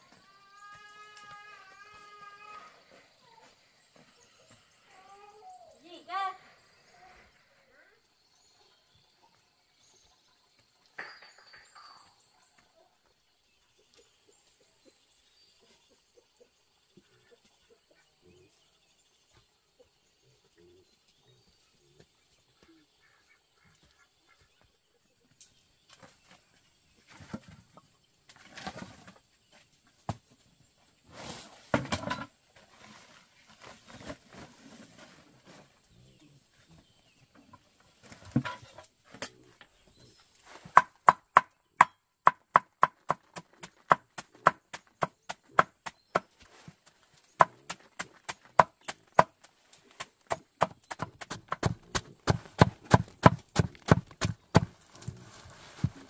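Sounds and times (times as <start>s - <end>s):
rustling: 54.6s - 56.0s.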